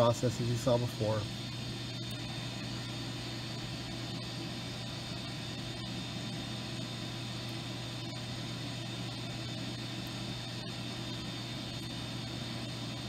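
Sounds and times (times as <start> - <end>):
machine hum with high whine: 0.0 - 13.0.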